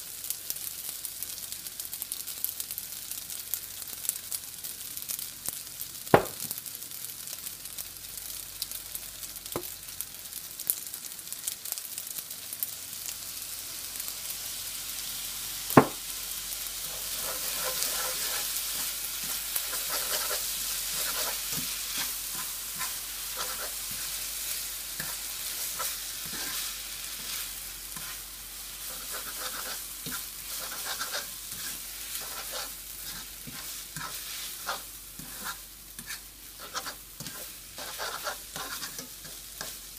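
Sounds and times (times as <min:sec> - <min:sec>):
noodles sizzling in frying pan: 0:00.0 - 0:39.9
sharp knock: 0:06.2 - 0:06.4, 0:15.8 - 0:16.0
spatula scraping pan: 0:16.8 - 0:39.9.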